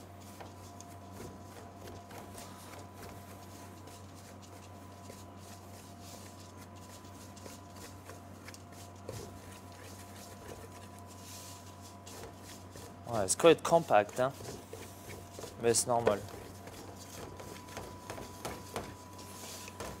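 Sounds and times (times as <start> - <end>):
electrical hum: 0.0 - 20.0
wooden spoon scraping in bowl: 5.6 - 20.0.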